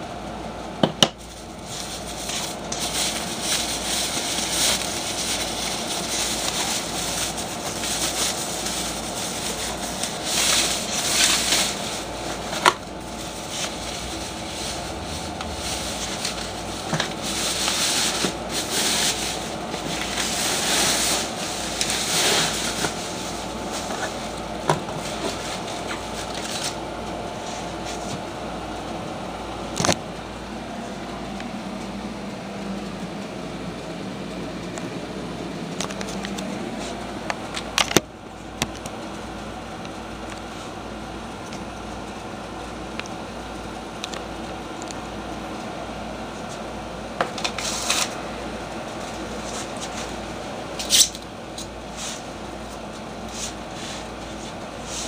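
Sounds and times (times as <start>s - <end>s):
steady low hum: 0.0s - 55.0s
plastic wrap crinkling: 1.2s - 26.8s.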